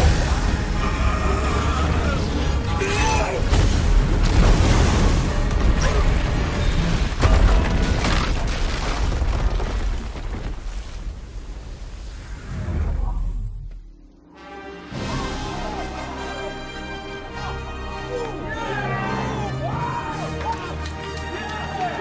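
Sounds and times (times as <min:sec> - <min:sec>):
orchestral score: 0:00.0 - 0:07.7, 0:14.2 - 0:22.0
crashing debris and water: 0:00.0 - 0:12.3
heavy crash of stone tower: 0:03.4 - 0:11.2.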